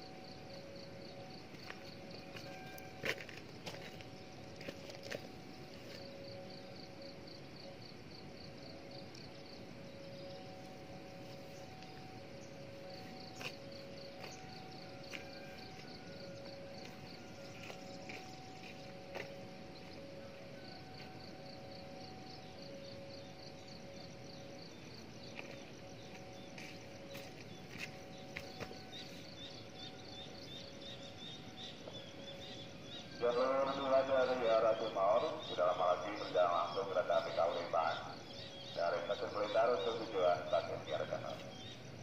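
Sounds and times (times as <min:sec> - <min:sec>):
faint steady tones: 0:00.0 - 0:42.0
insect chirping: 0:00.0 - 0:42.0.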